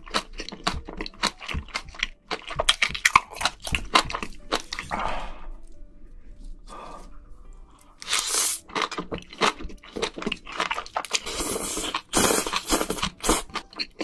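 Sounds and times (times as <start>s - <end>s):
wet chewing and crunching: 0.0s - 5.9s, 7.7s - 14.0s
soft background music: 0.0s - 14.0s
slurping noodles: 11.0s - 13.6s.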